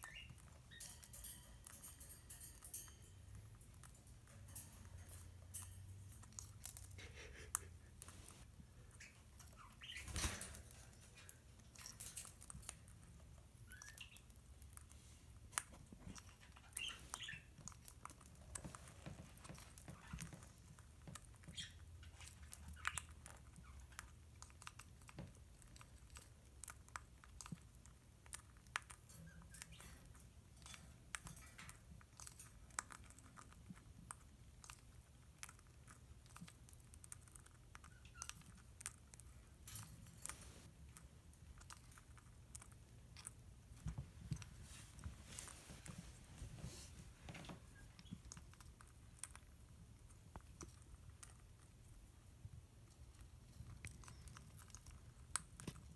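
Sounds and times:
parrot cracking seeds: 0.1 - 8.4, 9.0 - 44.6.

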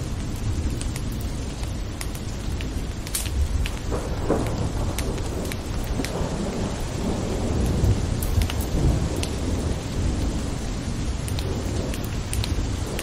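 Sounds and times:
steady rainfall: 0.0 - 13.0.

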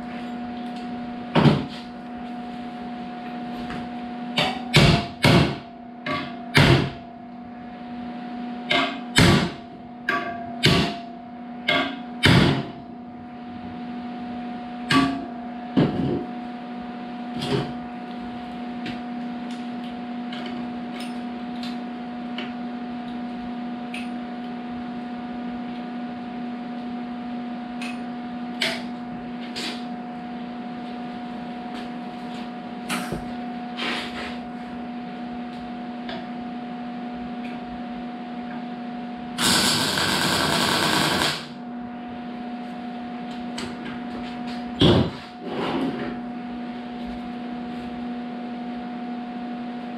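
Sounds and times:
steady hum: 0.0 - 49.6
welding burst: 39.4 - 41.6.

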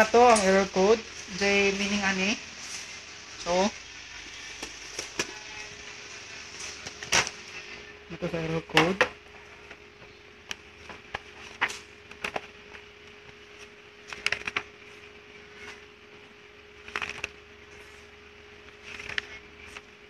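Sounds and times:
faint steady hum: 0.0 - 20.0
paper pages turning: 10.5 - 20.0.

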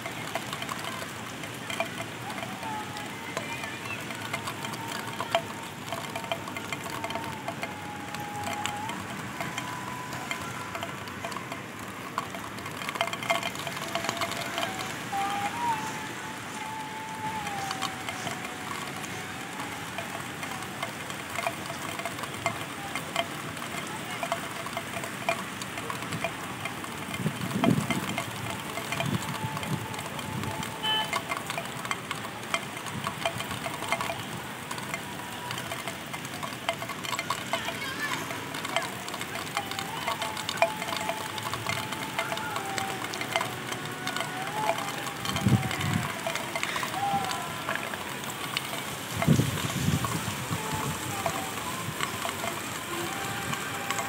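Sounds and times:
rain on a rooftop: 0.0 - 54.0
faint high tone sliding in pitch: 1.9 - 24.8.

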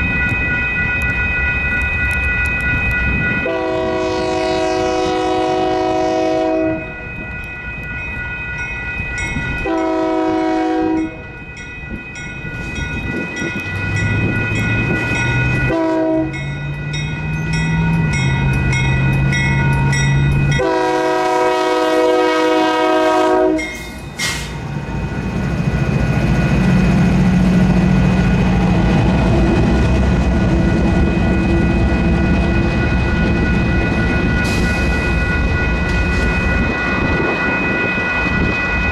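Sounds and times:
crossing bells ringing: 0.0 - 38.9
locomotive engines rumbling: 0.0 - 38.9
locomotive horn: 3.4 - 6.9, 9.6 - 11.2, 15.7 - 16.4, 20.5 - 24.5.

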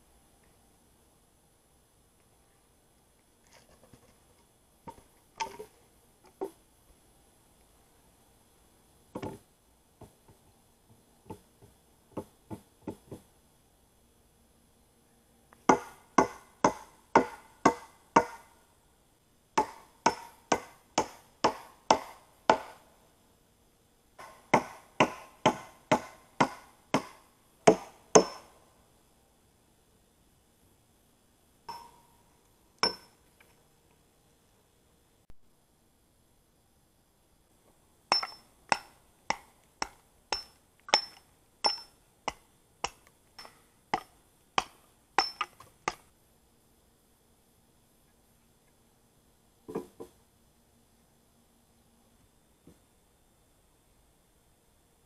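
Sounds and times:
light wooden knocks: 10.0 - 13.3
hammer pounding a log: 15.7 - 18.5, 19.6 - 22.8, 24.2 - 28.5.

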